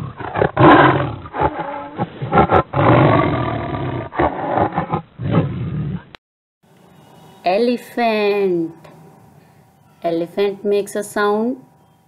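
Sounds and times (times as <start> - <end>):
tiger roaring: 0.0 - 6.1.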